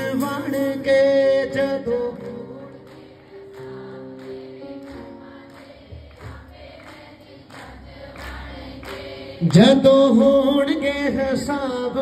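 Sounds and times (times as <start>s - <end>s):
electronic keyboard melody: 0.0s - 6.5s.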